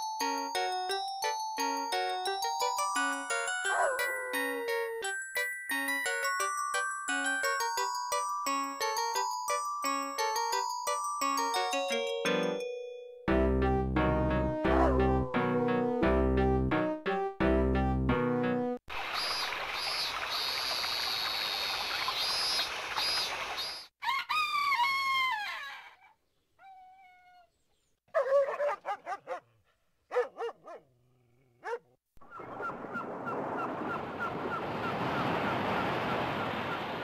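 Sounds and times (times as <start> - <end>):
dog barking: 14.7 - 15.1, 28.1 - 30.9, 31.6 - 32.0
rooster crowing: 24.0 - 26.0
waves washing: 32.7 - 37.0.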